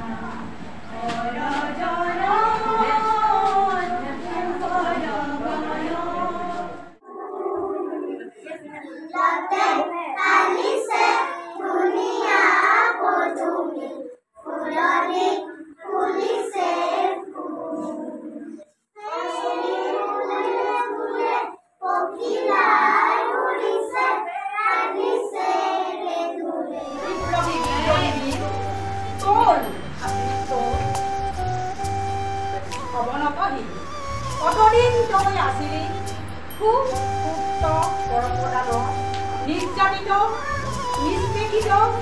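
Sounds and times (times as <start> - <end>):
women singing: 0.0 - 8.8, 14.4 - 30.9
children singing together: 0.0 - 32.8.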